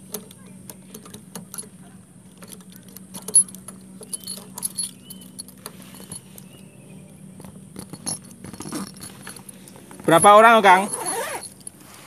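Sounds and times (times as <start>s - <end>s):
keys jangling: 2.4s - 6.6s, 7.4s - 11.9s
padlock metal clicks: 2.4s - 6.6s.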